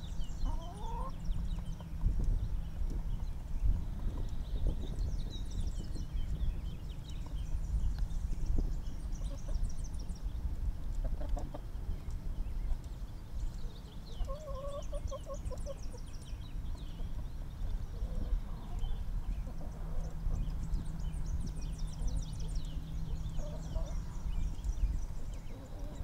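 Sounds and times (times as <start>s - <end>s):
chickens clucking: 0.0s - 5.0s, 9.0s - 9.6s, 10.8s - 12.9s, 13.9s - 26.0s.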